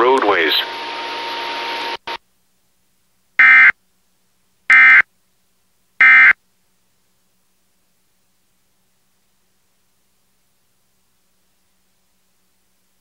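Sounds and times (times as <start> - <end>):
broadcast hiss: 0.0 - 13.0
digital data tone bursts: 3.4 - 3.7, 4.7 - 5.0, 6.0 - 6.4.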